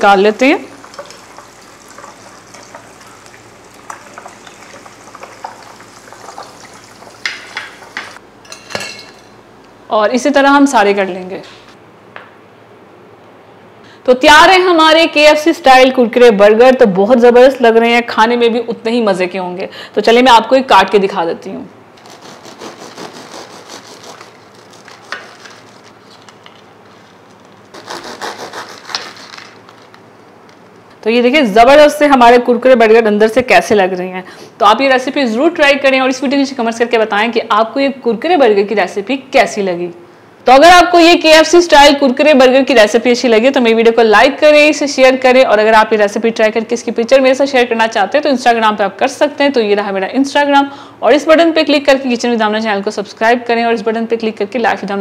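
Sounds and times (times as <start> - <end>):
hot oil sizzling and crackling: 0.0 - 8.2
knife cutting crunchy crust: 22.0 - 25.8, 27.7 - 29.5.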